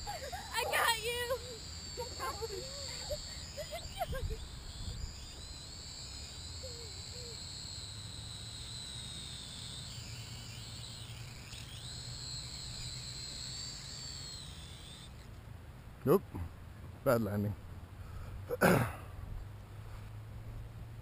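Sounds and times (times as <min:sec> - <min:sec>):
drone propellers whining: 0:00.0 - 0:15.4.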